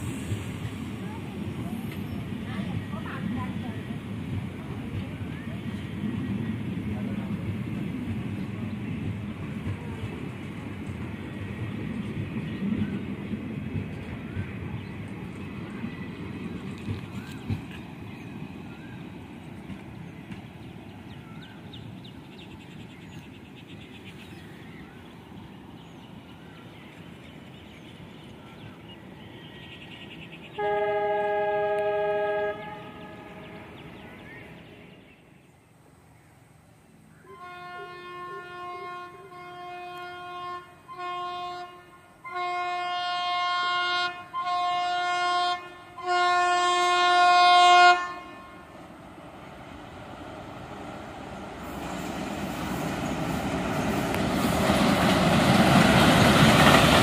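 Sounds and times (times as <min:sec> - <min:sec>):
train rumbling on rails: 0:00.0 - 0:57.0
locomotive horn blasts: 0:30.6 - 0:33.8, 0:37.3 - 0:48.8.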